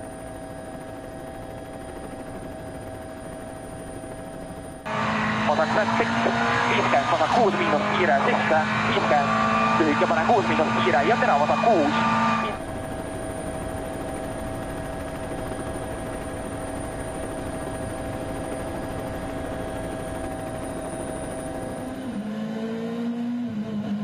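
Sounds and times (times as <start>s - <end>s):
drone turbine whine: 0.0s - 24.0s
rally car engine revving: 4.9s - 12.6s, 21.8s - 24.0s.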